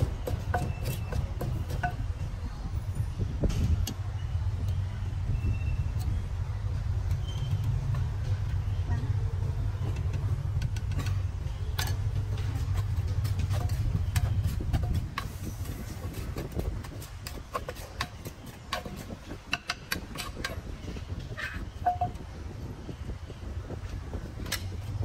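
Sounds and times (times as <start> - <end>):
wooden pestle pounding in mortar: 0.0 - 2.2, 12.4 - 20.6.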